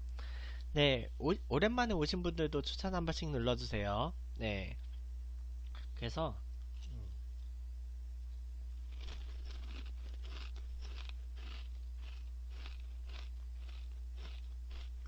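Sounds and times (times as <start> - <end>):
low hum: 0.0 - 15.0
crackers crunching while chewed: 8.8 - 15.0.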